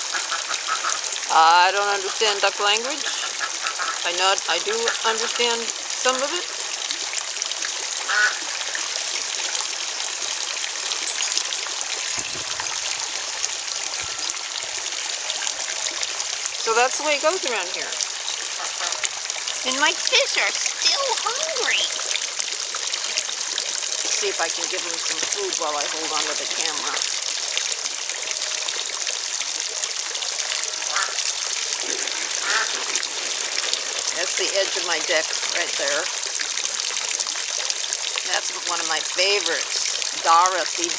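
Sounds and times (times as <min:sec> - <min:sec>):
water trickling into pond: 0:00.0 - 0:40.9.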